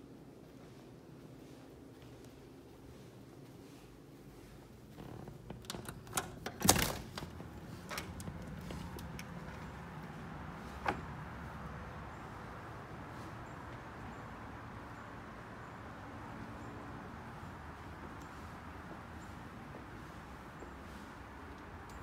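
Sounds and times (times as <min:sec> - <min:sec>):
door latch clicks: 0:05.6 - 0:09.6.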